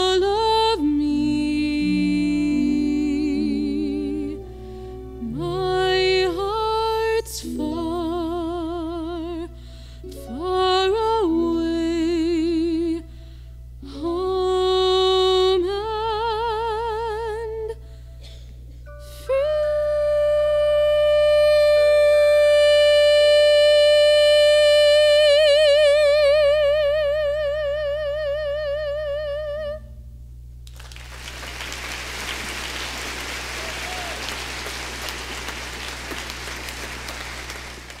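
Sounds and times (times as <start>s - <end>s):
soprano singing high note: 1.1s - 9.5s
audience applauding: 30.7s - 38.0s.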